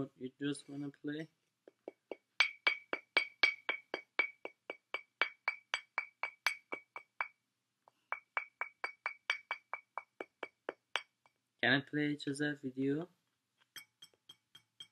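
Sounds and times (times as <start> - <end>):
beak tapping glass bottle: 1.7 - 11.2, 13.7 - 14.9.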